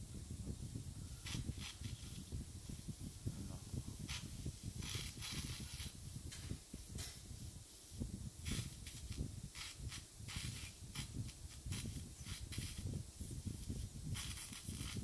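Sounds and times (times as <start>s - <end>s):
low steady rumble: 0.0s - 15.0s
dental suction hissing: 1.0s - 2.4s, 4.0s - 6.4s, 8.3s - 15.0s.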